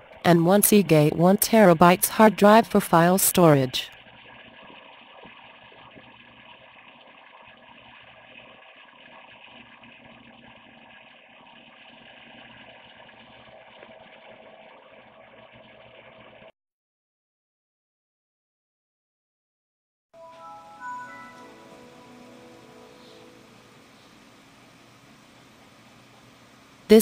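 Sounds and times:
faint mechanical hum: 21.3 - 27.0.

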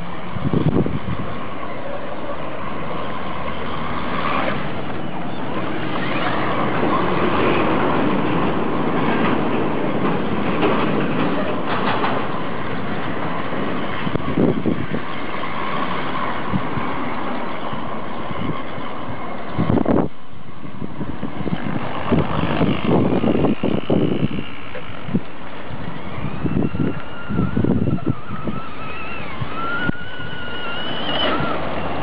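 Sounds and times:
wheels splashing in water: 1.4 - 19.6, 24.4 - 32.0
toy truck motor running: 21.5 - 32.0.

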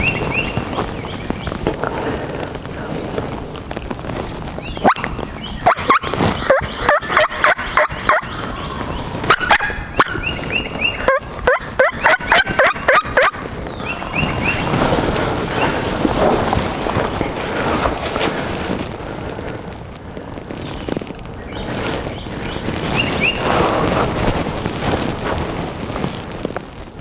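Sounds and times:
steady rushing noise: 0.0 - 27.0
turkey gobbling: 4.8 - 14.8.

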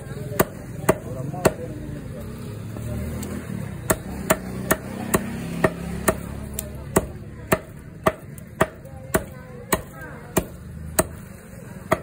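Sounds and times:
cleaver chopping on wooden block: 0.4 - 1.7, 3.9 - 12.0.

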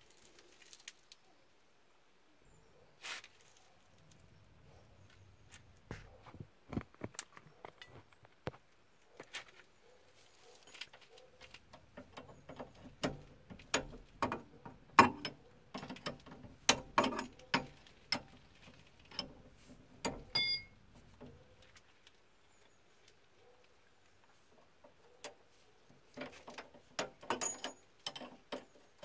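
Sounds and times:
spanner clicks and knocks on metal: 11.7 - 18.3, 26.2 - 28.8
short metallic ring: 20.3 - 20.8.

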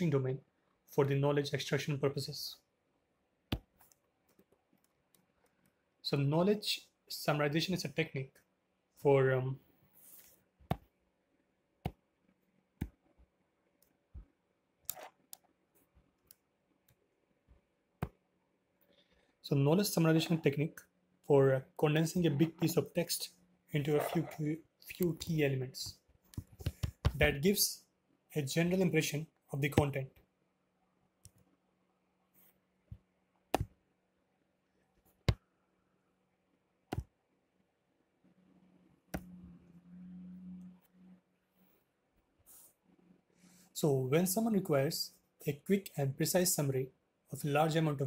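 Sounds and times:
low steady hum: 37.4 - 45.4.

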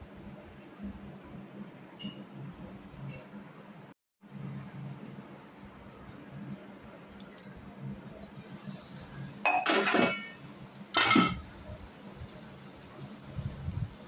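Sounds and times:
glass pan lid clinking: 9.5 - 10.4.

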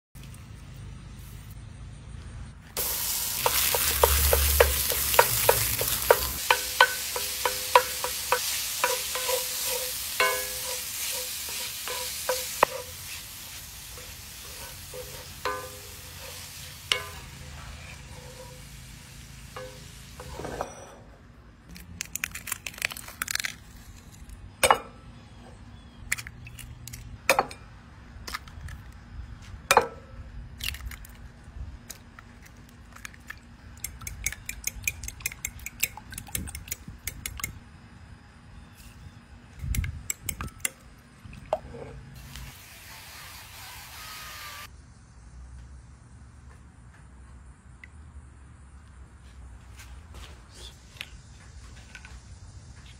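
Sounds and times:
sausage sizzling in a skillet: 2.8 - 20.2
spatula tapping and scraping pan: 3.4 - 13.0, 14.0 - 18.6.

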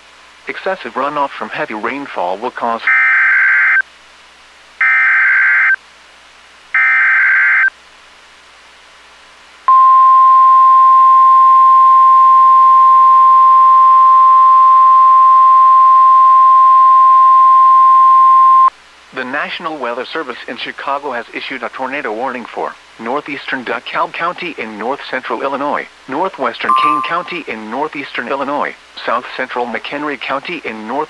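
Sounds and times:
steady alarm tone: 26.7 - 27.4.

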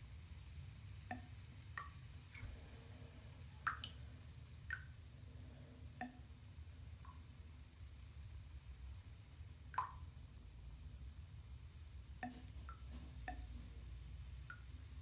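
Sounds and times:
low steady hum: 0.0 - 15.0
water drops plinking into bathtub: 1.1 - 2.0, 3.6 - 4.0, 4.6 - 4.9, 6.0 - 6.3, 7.0 - 7.3, 9.7 - 10.1, 12.2 - 13.6.

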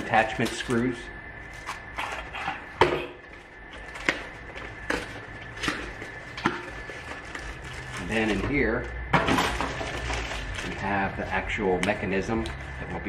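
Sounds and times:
rummaging in cardboard box: 3.3 - 11.4.

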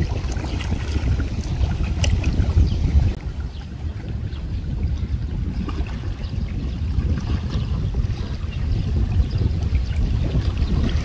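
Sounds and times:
small waves washing: 0.0 - 8.8
wind buffeting microphone: 0.0 - 11.0.

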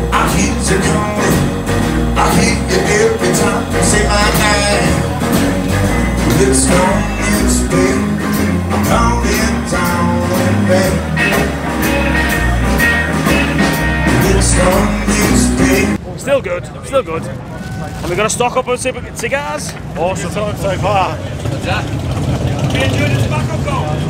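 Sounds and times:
rock and roll song: 0.0 - 16.0.

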